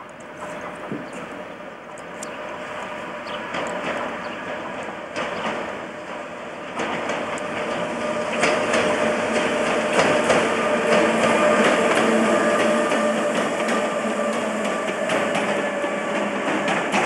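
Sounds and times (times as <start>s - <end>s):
train passing at speed: 0.0s - 17.0s
wheels clicking over rail joints: 0.0s - 17.0s.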